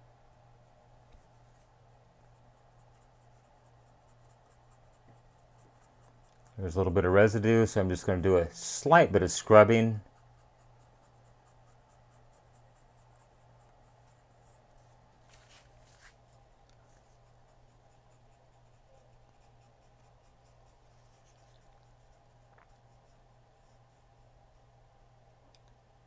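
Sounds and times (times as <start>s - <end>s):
cotton swab rubbing on glass: 10.0s - 24.0s.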